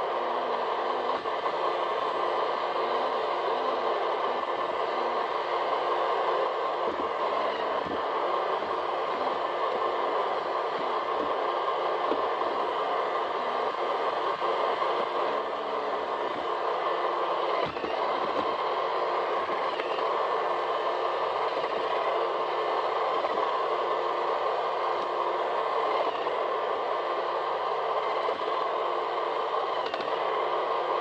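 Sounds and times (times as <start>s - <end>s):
robot vacuum whirring: 0.0s - 31.0s.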